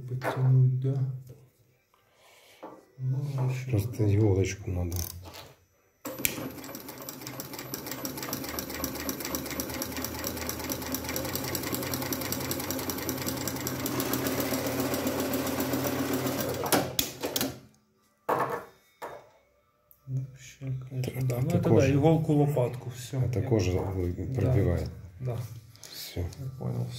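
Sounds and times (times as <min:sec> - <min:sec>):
sewing machine stitching leather: 0:06.1 - 0:17.6.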